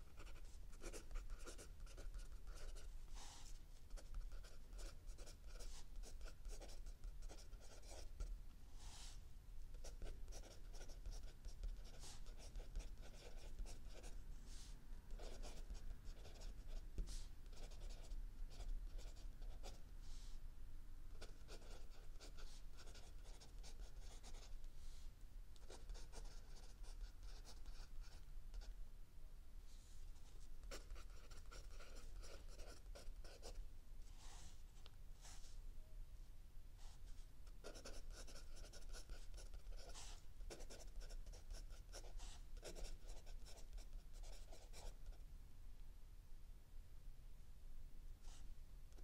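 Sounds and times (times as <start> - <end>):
pencil scratching on paper: 0.0 - 8.2, 9.8 - 14.2, 15.2 - 19.8, 21.2 - 24.6, 25.6 - 28.2, 30.7 - 33.6, 37.6 - 45.0.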